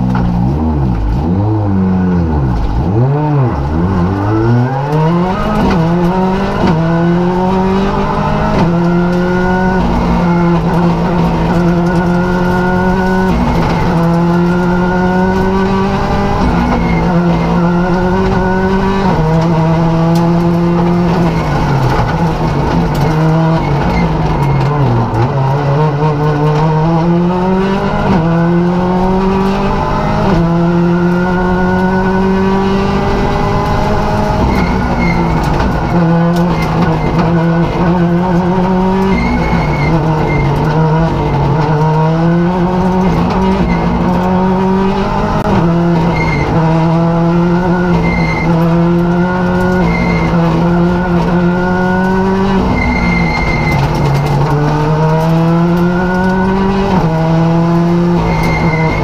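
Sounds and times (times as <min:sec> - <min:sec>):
rally car engine revving through gears: 0:00.0 - 0:59.0
road and tyre noise: 0:00.0 - 0:59.0.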